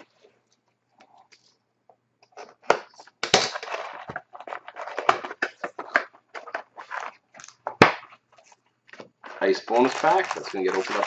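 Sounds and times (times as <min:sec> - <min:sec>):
plastic shrink-wrap crinkling: 0:09.2 - 0:11.0.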